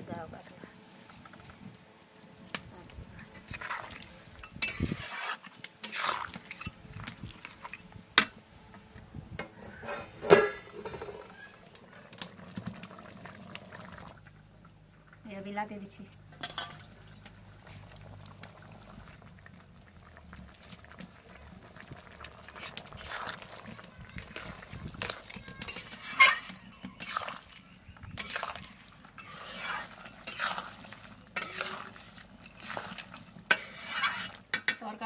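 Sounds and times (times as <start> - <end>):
metal ladle stirring and scraping: 3.2 - 7.9, 9.4 - 12.3, 22.4 - 34.8.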